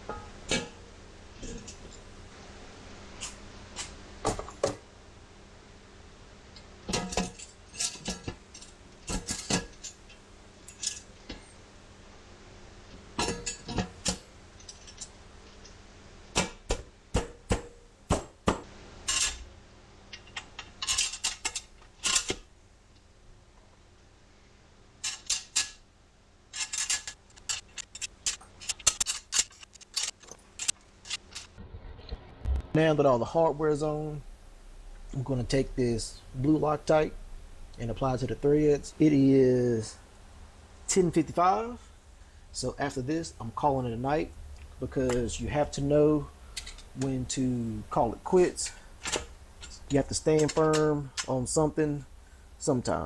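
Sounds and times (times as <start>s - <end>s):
metal bolts clinking: 6.9s - 11.5s, 13.2s - 15.8s, 19.1s - 19.4s, 20.1s - 22.4s, 25.0s - 25.8s, 26.5s - 31.5s, 46.1s - 47.3s, 48.6s - 51.4s.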